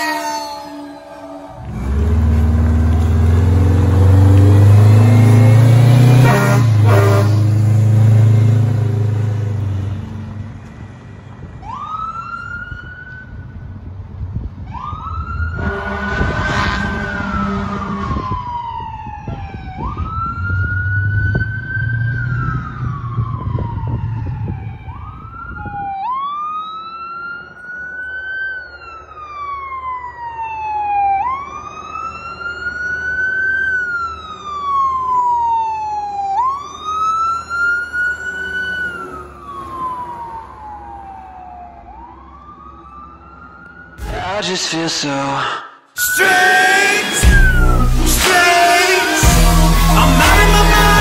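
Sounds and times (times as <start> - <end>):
horn blast: 0.0 - 8.5, 15.5 - 18.4, 46.0 - 51.0
fire truck sirens wailing: 0.0 - 45.0, 46.0 - 51.0
heavy engine rumble: 1.4 - 11.6, 47.2 - 51.0.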